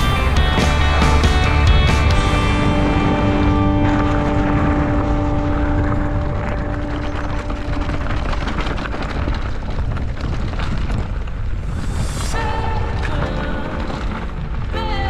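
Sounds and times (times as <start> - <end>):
background music: 0.0 - 7.6, 12.3 - 15.0
tyre noise: 0.0 - 15.0
wind rumbling on microphone: 1.8 - 15.0
bike clicks and rattles: 5.6 - 11.7.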